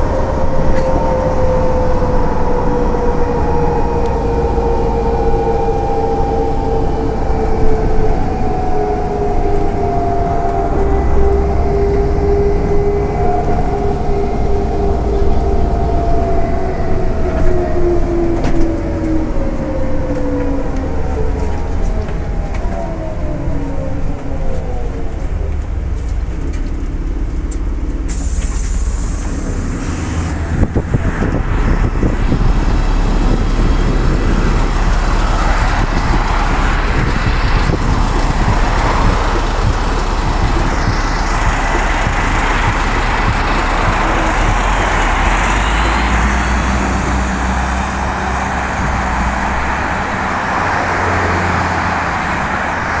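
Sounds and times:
bus diesel engine running: 0.0s - 53.0s
city traffic noise: 0.0s - 53.0s
sudden hiss: 28.1s - 30.4s.

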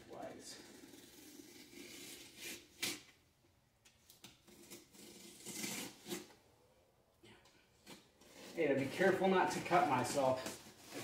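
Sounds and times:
utility knife cutting cardboard: 0.6s - 3.1s, 4.2s - 6.4s, 7.8s - 11.0s.

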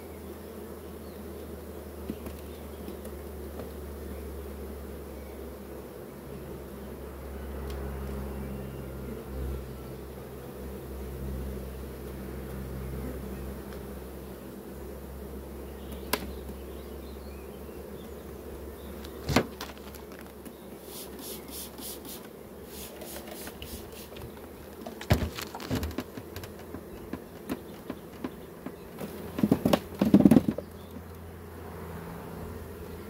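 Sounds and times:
honeybees buzzing: 0.0s - 33.0s
wooden frames knocking and scraping: 19.2s - 20.3s, 23.0s - 30.8s.

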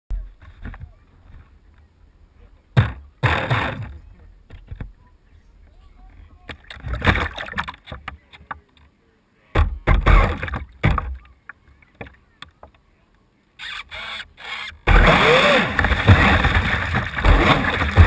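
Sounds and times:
knocks: 9.6s - 11.2s
speedboat rushing through water: 14.9s - 18.0s.

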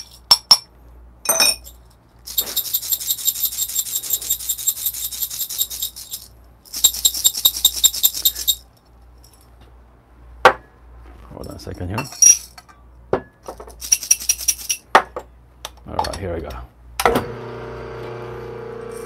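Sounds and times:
coffee beans clinking: 1.3s - 8.6s
coffee beans rattling in metal cup: 1.6s - 8.6s, 13.7s - 14.8s.

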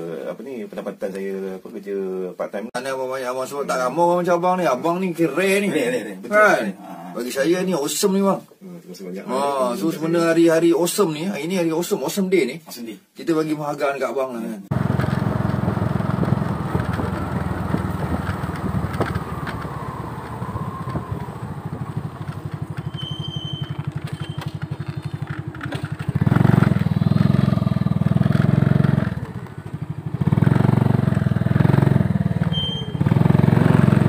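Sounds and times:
small motorcycle engine running: 14.7s - 34.0s.

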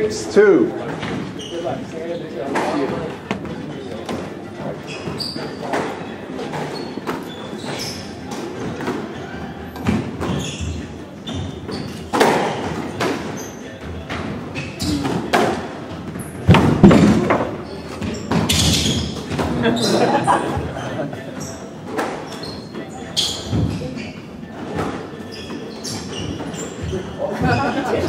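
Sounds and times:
footsteps on wooden floor: 2.9s - 3.6s.

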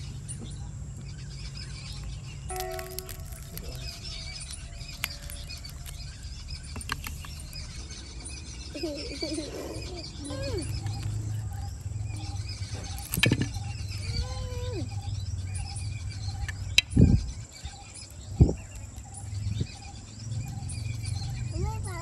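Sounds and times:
low rumble: 2.1s - 8.8s
bread crust cracking: 2.5s - 7.8s, 10.6s - 14.0s.

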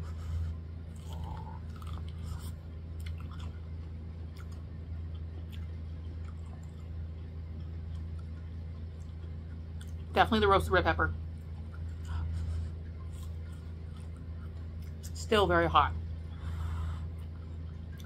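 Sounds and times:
low hum: 0.0s - 18.0s
chewing corn crunches: 0.9s - 10.1s, 11.5s - 15.2s.

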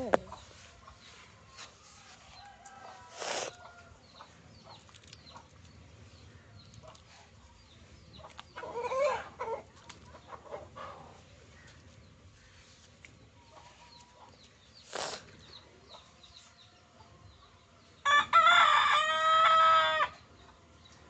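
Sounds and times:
small bird chirps: 12.4s - 16.7s.

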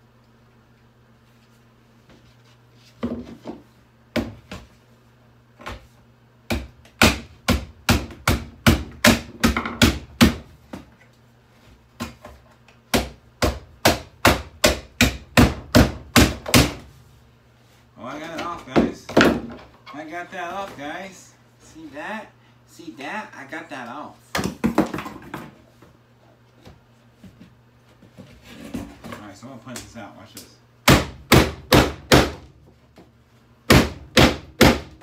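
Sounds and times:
hammer striking a boombox: 30.8s - 32.4s, 33.7s - 35.0s.

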